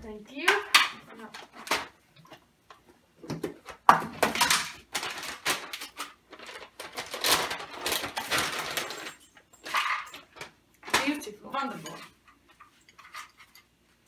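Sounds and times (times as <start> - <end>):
plastic snack bag crinkling: 4.2 - 11.0.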